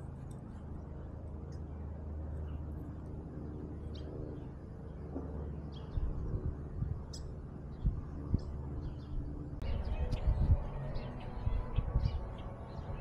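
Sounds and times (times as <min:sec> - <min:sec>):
songbirds chirping: 0:00.0 - 0:13.0
low rumble: 0:04.9 - 0:13.0.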